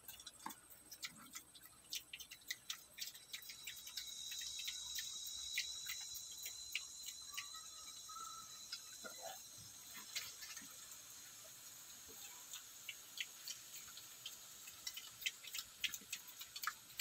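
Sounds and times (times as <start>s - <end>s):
piglets crunching dry feed: 0.0s - 17.0s
insect buzzing: 3.1s - 10.8s.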